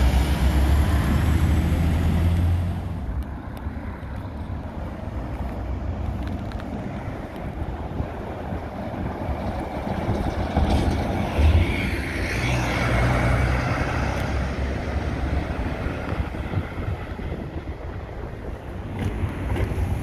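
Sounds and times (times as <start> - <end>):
diesel coach driving past: 0.0 - 3.1.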